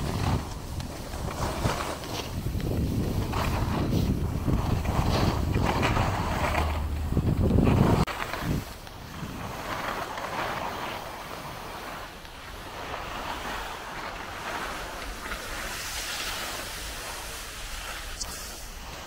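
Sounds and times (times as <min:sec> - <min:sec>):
skis scraping over snow: 0:00.0 - 0:19.0.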